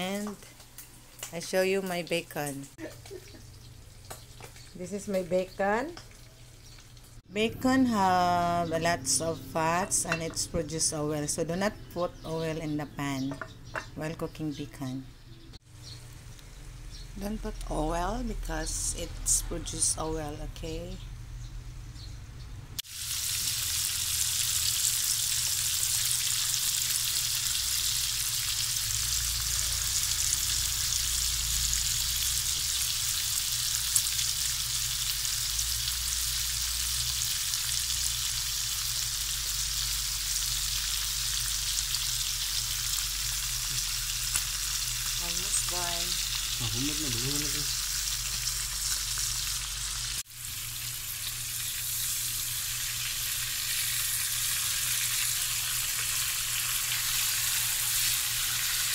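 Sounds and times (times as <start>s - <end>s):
bacon sizzling in a pan: 22.8s - 58.9s.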